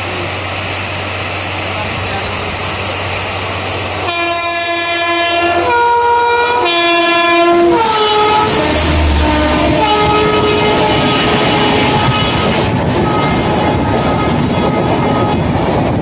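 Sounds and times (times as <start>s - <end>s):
train rail and wheel noise: 0.0s - 16.0s
locomotive horn blast: 4.0s - 15.3s.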